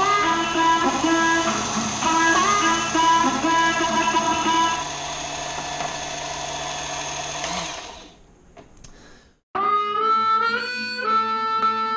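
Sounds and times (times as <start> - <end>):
music: 0.0 - 4.8, 9.6 - 11.9
knife sharpener motor grinding: 0.0 - 8.2.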